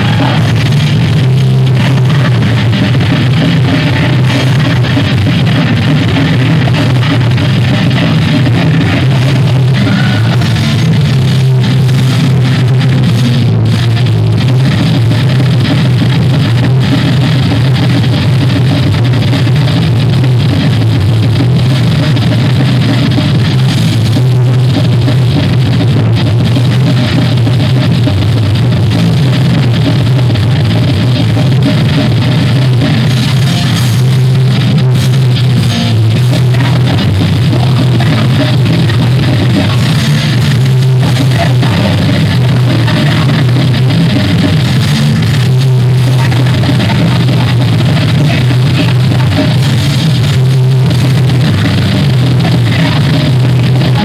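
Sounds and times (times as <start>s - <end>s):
bass guitar: 0.0s - 54.0s
distorted electric guitar: 0.0s - 54.0s
drum kit: 0.0s - 54.0s.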